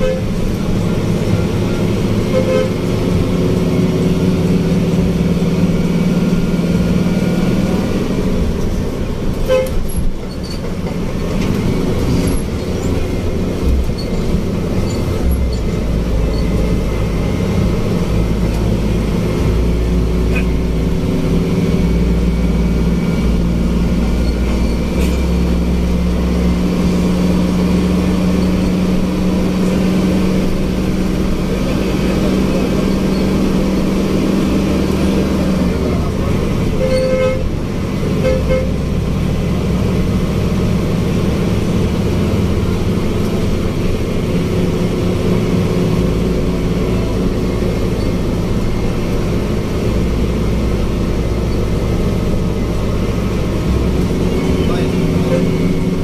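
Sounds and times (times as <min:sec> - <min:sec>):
short horn toots: 0:00.0 - 0:00.4, 0:02.2 - 0:02.9, 0:09.4 - 0:09.9, 0:36.7 - 0:37.5, 0:38.2 - 0:38.8, 0:55.2 - 0:55.8
bus diesel engine drone: 0:00.0 - 0:56.0.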